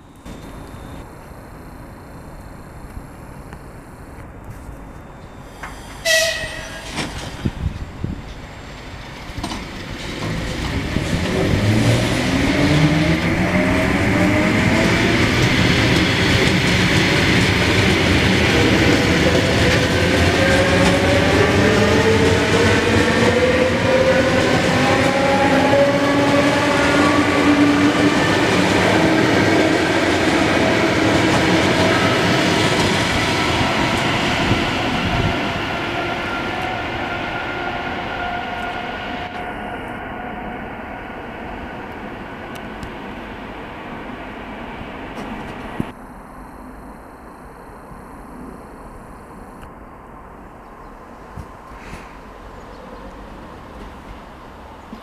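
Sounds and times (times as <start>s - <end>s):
wheels running on rail: 0.0s - 40.5s
electric train traction whine: 0.0s - 51.3s.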